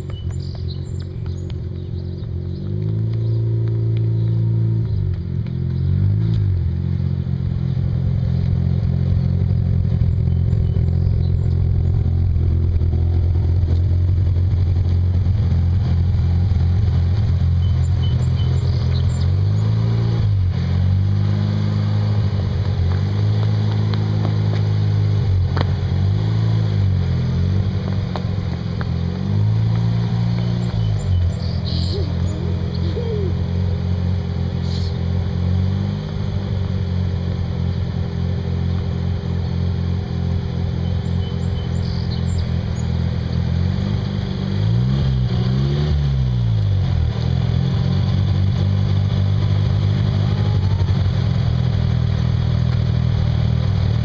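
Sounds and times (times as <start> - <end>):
rotary engine revving: 0.0 - 54.0.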